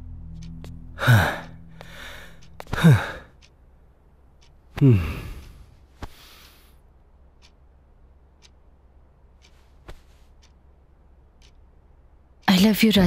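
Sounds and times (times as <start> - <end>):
man sighing heavily: 1.0 - 3.3, 4.8 - 5.7.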